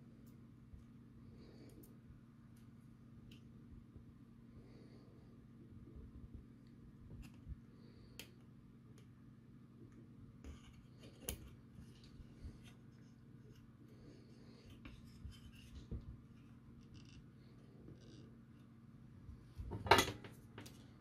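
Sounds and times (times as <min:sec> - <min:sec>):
steady low hum: 0:00.0 - 0:21.0
wire leads rubbing and clicking: 0:14.6 - 0:18.8.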